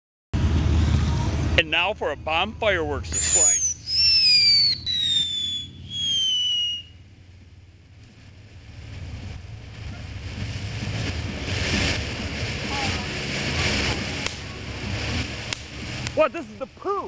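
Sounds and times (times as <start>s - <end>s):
firework spark spray hiss: 3.1s - 6.9s, 11.0s - 16.5s
firework falling whistles: 3.1s - 7.1s.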